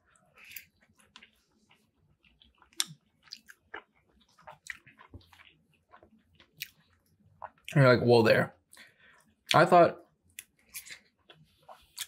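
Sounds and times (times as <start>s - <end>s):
chewing wet mouth sounds: 0.0s - 7.8s, 10.3s - 12.0s.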